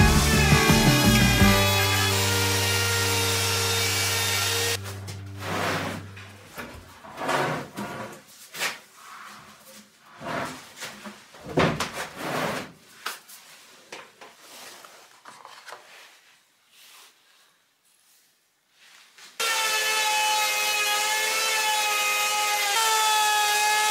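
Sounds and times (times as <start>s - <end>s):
wood scraping and knocking on wood: 4.8s - 8.7s.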